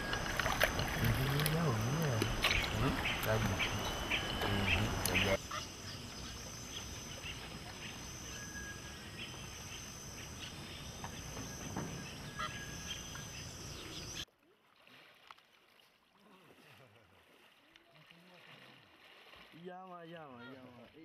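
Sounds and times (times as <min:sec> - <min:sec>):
people splashing in water: 0:00.0 - 0:05.4, 0:14.3 - 0:21.0
bird whistling: 0:00.0 - 0:05.6, 0:07.8 - 0:14.2
high steady whine: 0:00.0 - 0:06.7
steady outdoor hiss: 0:00.0 - 0:14.2.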